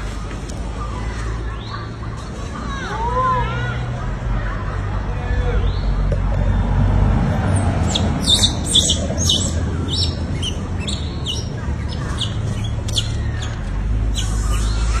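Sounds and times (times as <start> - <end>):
high chirping squeaks: 7.5 - 15.0.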